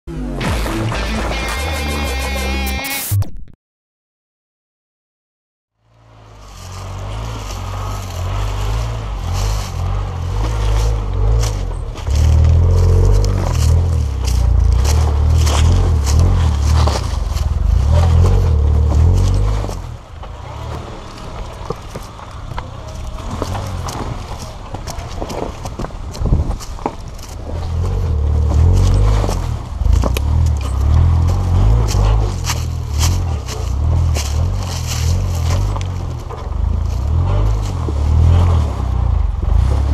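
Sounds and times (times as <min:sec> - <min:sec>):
car engine running: 0:05.8 - 0:39.9
tyres crunching on rocks: 0:06.2 - 0:39.9.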